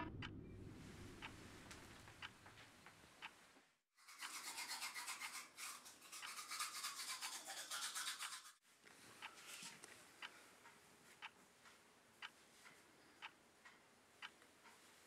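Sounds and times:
toothbrush scrubbing teeth: 0:04.0 - 0:08.6.

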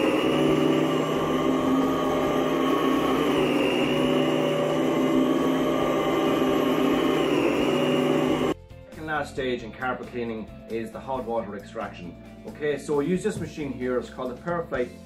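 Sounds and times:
carpet cleaning machine running: 0:00.0 - 0:08.6.

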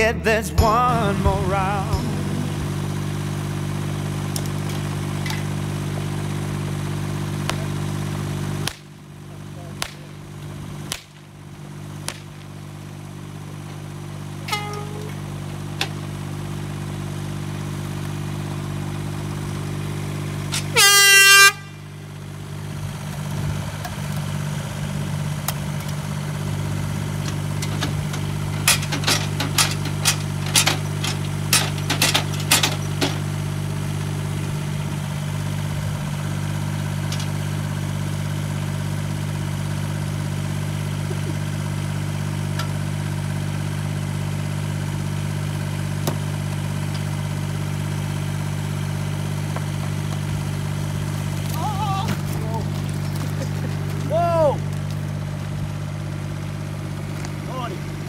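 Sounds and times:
engine idling: 0:00.0 - 0:58.0
air horn blast: 0:14.5 - 0:15.2, 0:20.5 - 0:22.1.

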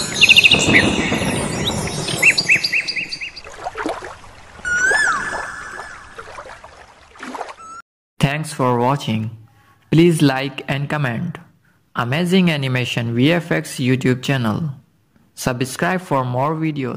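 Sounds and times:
whistled bird call: 0:00.0 - 0:03.5, 0:04.6 - 0:06.3, 0:07.5 - 0:07.8
birds chirping: 0:00.0 - 0:07.8
running water rushing: 0:00.0 - 0:07.8.

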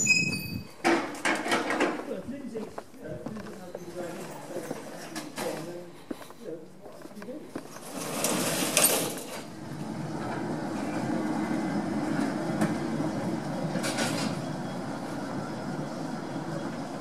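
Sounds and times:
funicular car wheels on rails: 0:07.2 - 0:17.0.

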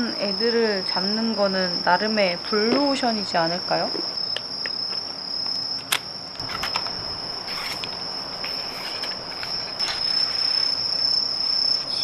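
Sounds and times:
insects trilling: 0:00.0 - 0:12.0
rustling: 0:06.4 - 0:11.0.

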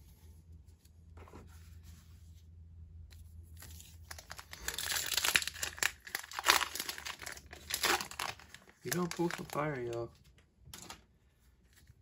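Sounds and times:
foil wrapper crinkling and tearing: 0:03.6 - 0:10.1.

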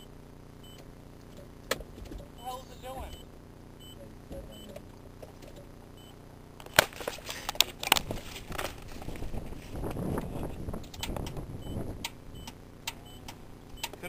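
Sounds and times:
camera being handled: 0:06.6 - 0:09.8.

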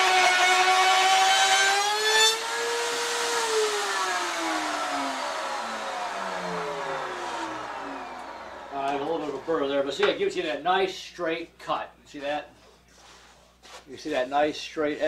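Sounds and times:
router whining: 0:00.0 - 0:10.5.

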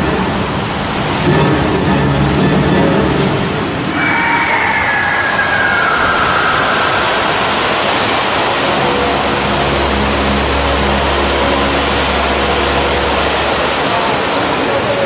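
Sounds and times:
loud steady rushing noise: 0:00.0 - 0:15.0
whistling tone sliding down: 0:03.7 - 0:14.0.

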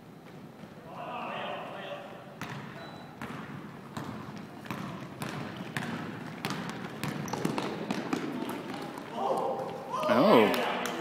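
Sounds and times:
basketball bouncing on wooden floor: 0:02.4 - 0:09.1.

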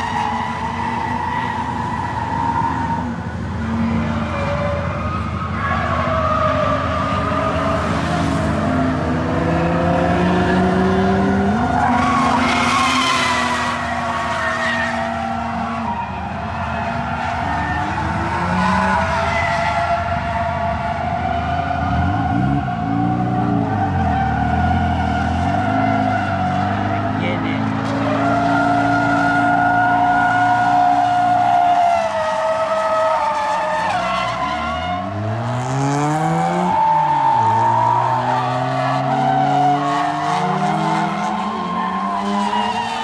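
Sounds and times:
car engines revving: 0:00.0 - 0:43.0.

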